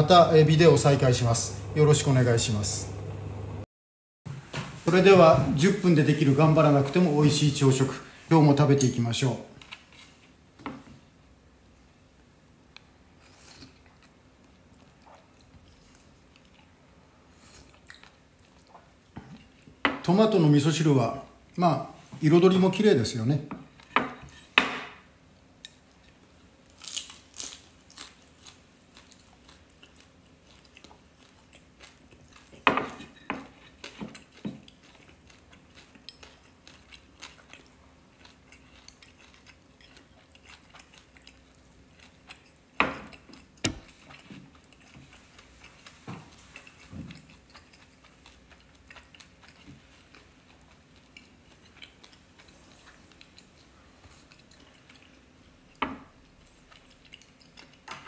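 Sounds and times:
quiet chewing: 0:12.7 - 0:19.8, 0:27.9 - 0:32.7, 0:33.4 - 0:58.0.

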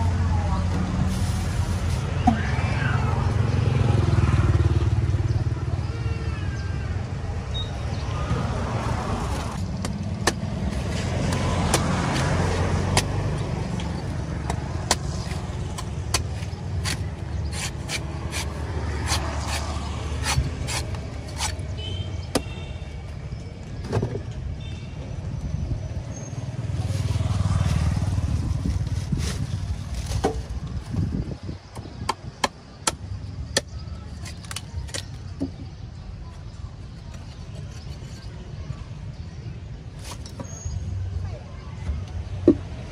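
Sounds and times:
road traffic rumble: 0:00.0 - 0:42.9
knife chopping coconut husk: 0:09.5 - 0:21.6, 0:32.0 - 0:35.1.

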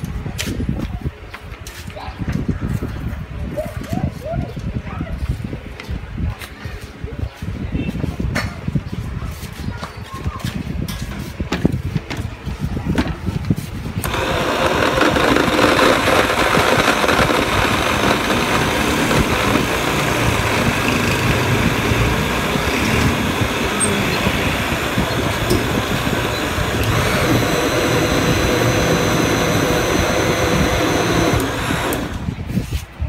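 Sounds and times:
blender motor whine: 0:14.0 - 0:32.4.

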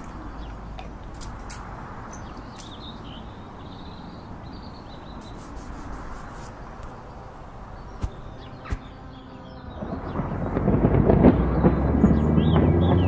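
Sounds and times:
outdoor hiss: 0:05.1 - 0:08.9
low rumble: 0:07.0 - 0:13.0.

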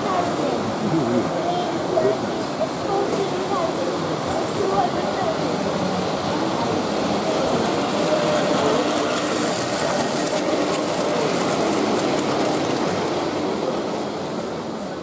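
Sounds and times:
hubbub of people talking: 0:00.0 - 0:15.0
model train running on track: 0:00.0 - 0:15.0.

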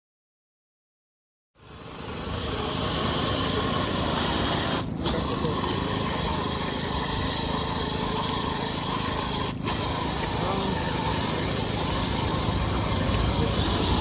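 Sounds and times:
electric motor whining: 0:01.6 - 0:14.0
tyres churning through mud: 0:01.6 - 0:14.0.

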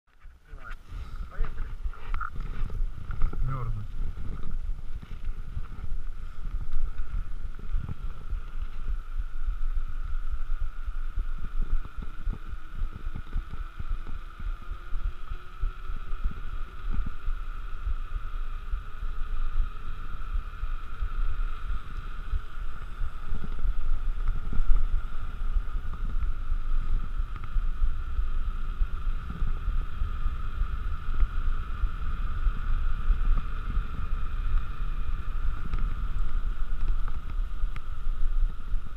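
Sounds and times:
bike rolling hum: 0:00.1 - 0:38.9
wind buffeting microphone: 0:00.2 - 0:38.9.

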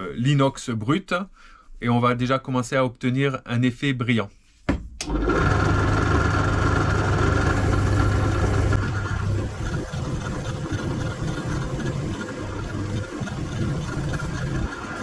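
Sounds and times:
drill press motor humming: 0:05.0 - 0:15.0
brush scrubbing steel: 0:07.6 - 0:15.0.

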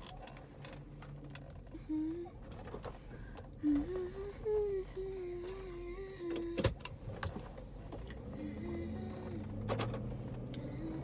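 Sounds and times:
low steady car hum: 0:00.0 - 0:11.0
woman humming a slow tune: 0:01.8 - 0:02.4, 0:08.3 - 0:09.7.

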